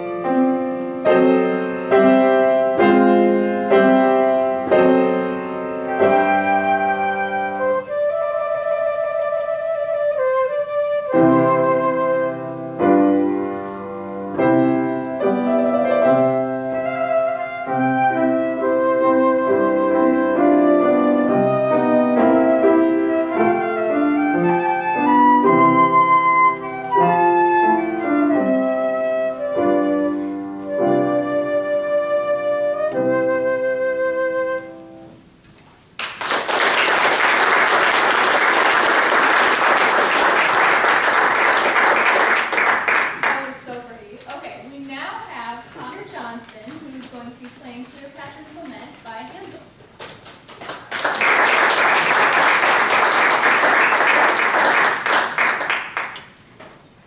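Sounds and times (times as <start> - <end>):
flute playing: 0.0 - 35.2
piano accompaniment: 0.0 - 49.8
audience applauding: 36.0 - 43.6, 50.0 - 56.4.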